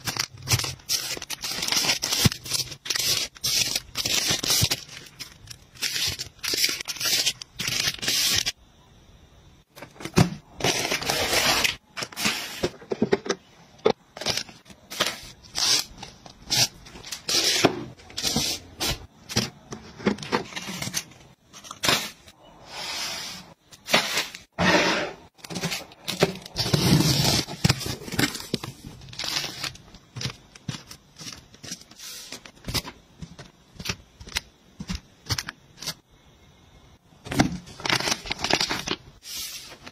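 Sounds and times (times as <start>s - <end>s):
plastic wrapping crinkling: 0.0s - 8.5s, 25.4s - 34.4s, 37.7s - 39.9s.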